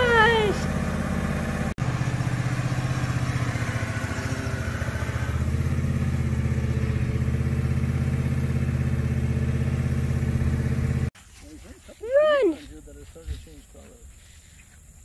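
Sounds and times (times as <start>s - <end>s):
riding mower engine running: 0.0s - 11.2s.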